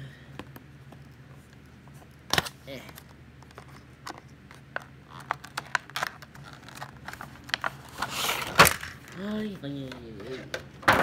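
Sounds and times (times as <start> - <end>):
packaging tearing and crinkling: 5.1 - 9.1.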